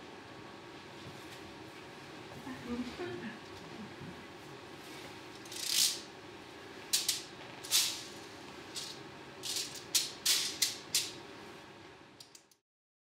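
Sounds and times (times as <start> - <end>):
abacus beads rattling: 5.4 - 6.0, 8.8 - 11.1.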